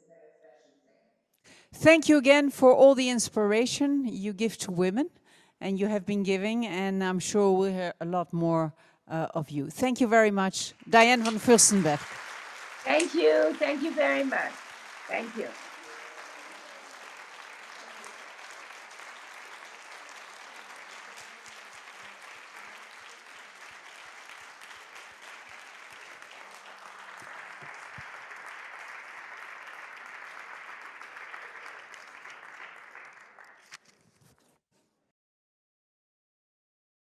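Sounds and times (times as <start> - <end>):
audience applauding: 10.8 - 33.8.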